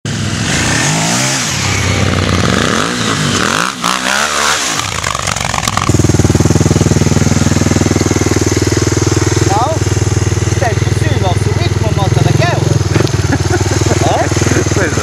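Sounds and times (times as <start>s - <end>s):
motorcycle engines revving past: 0.1s - 15.0s
motorcycle engine idling: 4.8s - 15.0s.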